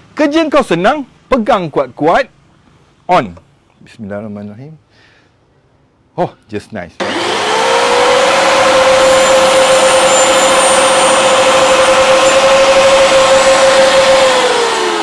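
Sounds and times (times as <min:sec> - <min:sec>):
table saw motor whine: 0:07.0 - 0:15.0.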